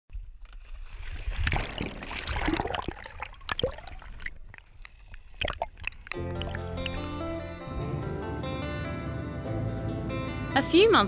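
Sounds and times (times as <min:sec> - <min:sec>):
water sloshing and gurgling: 0:00.2 - 0:07.5
splashy clicks: 0:01.0 - 0:07.0
music: 0:06.2 - 0:11.0.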